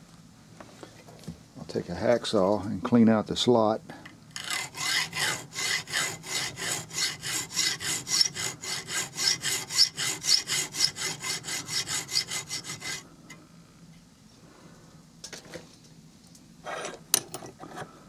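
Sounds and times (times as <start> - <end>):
hacksaw sawing metal: 4.4 - 13.0.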